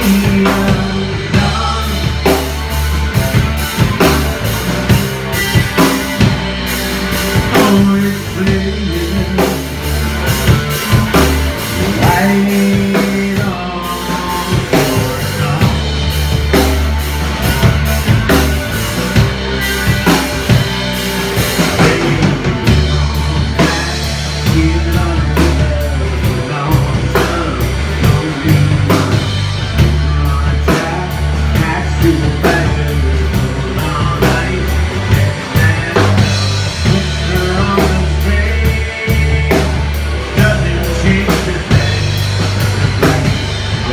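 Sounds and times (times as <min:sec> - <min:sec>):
drum kit beat: 0:00.0 - 0:43.9
electric bass: 0:00.0 - 0:43.9
electric guitar: 0:00.0 - 0:43.9.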